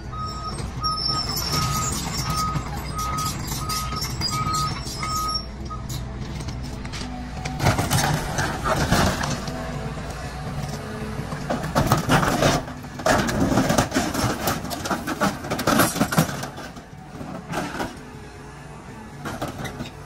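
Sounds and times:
excavator engine running: 0.0s - 20.0s.

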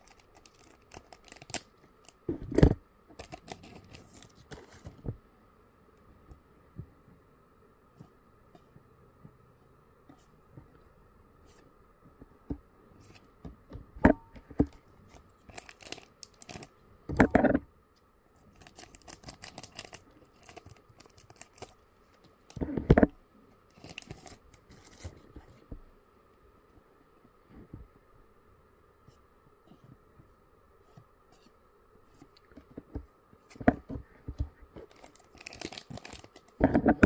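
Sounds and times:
scissors cutting foil pack: 0.0s - 1.7s, 15.5s - 16.7s, 18.6s - 21.8s, 23.7s - 25.0s, 34.9s - 36.6s
wrapper crinkling: 0.0s - 2.2s, 3.2s - 4.9s, 15.1s - 16.7s, 18.5s - 21.8s, 23.7s - 25.2s, 34.8s - 36.6s.

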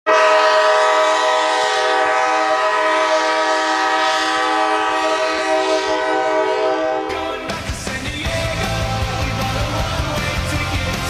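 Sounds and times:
goal horn blast: 0.1s - 7.2s.

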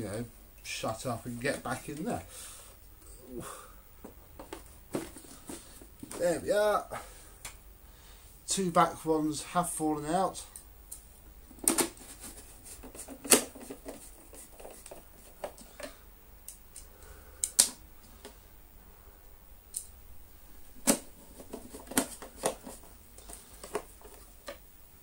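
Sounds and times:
plastic parts clicking and knocking: 4.0s - 6.2s, 11.5s - 12.0s, 20.8s - 24.6s.

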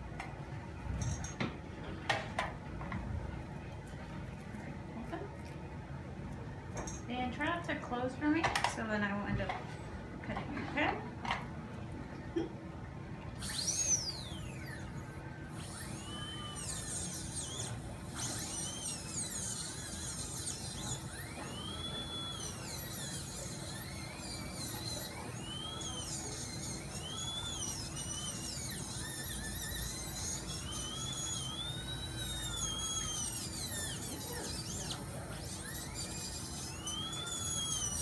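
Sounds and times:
dental handpiece whining: 0.9s - 1.5s, 13.3s - 38.0s.

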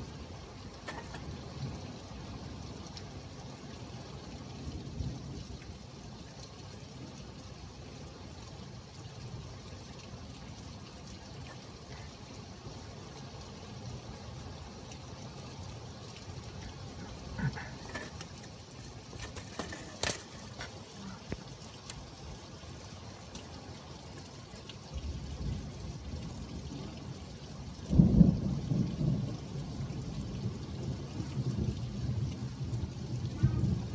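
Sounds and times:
steady rain: 0.0s - 33.9s
water trickling and pouring: 0.0s - 33.9s
low thunder rumble: 27.8s - 33.9s.

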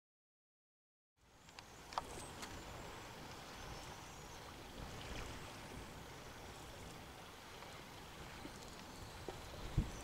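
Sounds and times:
sea water along pier: 1.2s - 10.0s
faint ticks: 1.4s - 2.6s, 8.5s - 9.4s
wind rumbling on microphone: 1.5s - 10.0s.

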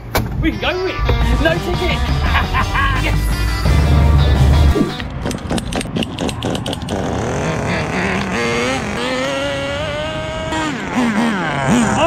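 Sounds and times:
model car engine revving: 6.4s - 12.0s.

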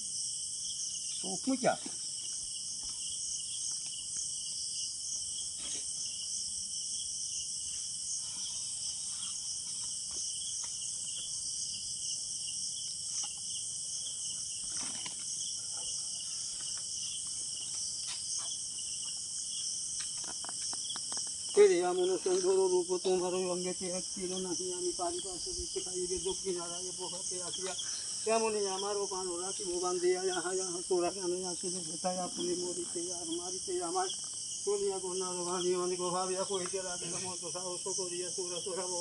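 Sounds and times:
crickets and insects trilling: 0.0s - 39.0s.

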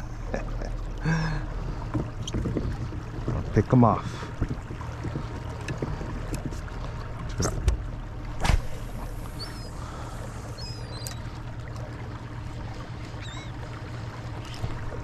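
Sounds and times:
low hum: 0.0s - 15.0s
water around kayak: 0.0s - 15.0s
high bird calls: 9.2s - 11.4s, 13.1s - 13.6s.

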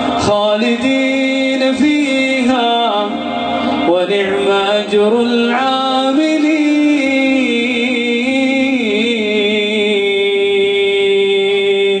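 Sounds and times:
man chanting: 0.0s - 12.0s.

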